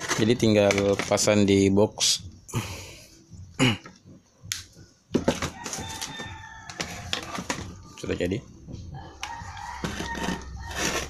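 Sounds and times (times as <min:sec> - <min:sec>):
rooster crowing: 0:05.3 - 0:07.4, 0:09.0 - 0:11.0.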